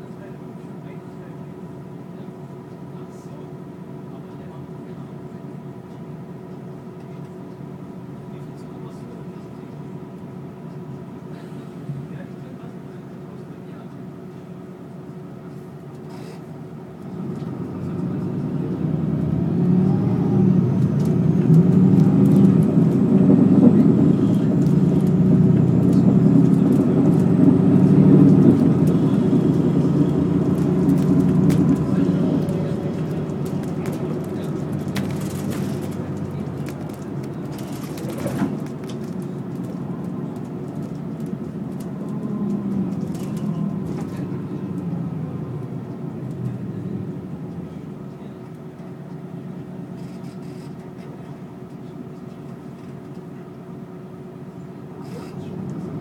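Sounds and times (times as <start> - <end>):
diesel bus engine: 0.0 - 56.0
tyre and road noise: 17.1 - 47.8.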